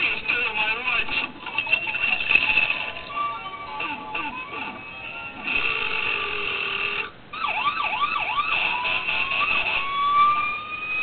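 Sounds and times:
thin siren sound effect: 3.8s - 11.0s.

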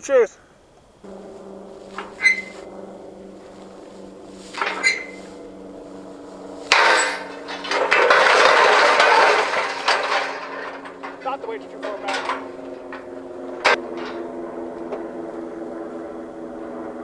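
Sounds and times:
metal crashing and rattling: 1.1s - 14.2s
trigger clanks: 6.7s - 14.2s.

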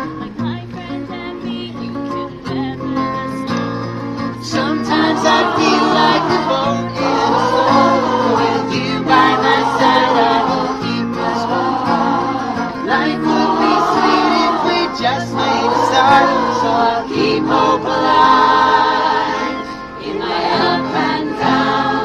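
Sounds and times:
acoustic guitars strumming: 0.0s - 22.0s
lead singer: 4.3s - 22.0s
choir singing: 4.4s - 22.0s.

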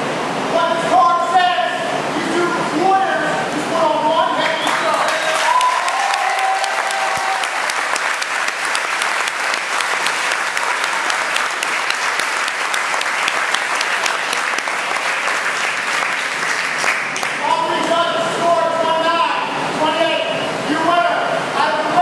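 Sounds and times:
crowd applauding: 4.4s - 18.0s.

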